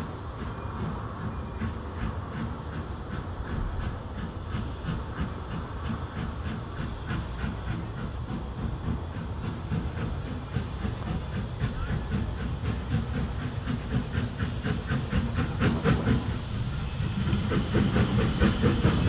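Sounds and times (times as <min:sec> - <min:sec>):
steam locomotive exhaust beating: 0:00.0 - 0:19.0.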